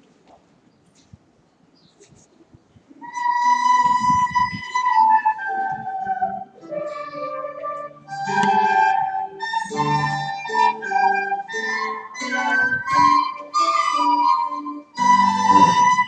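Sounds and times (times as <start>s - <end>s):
children playing recorders: 3.0s - 16.0s.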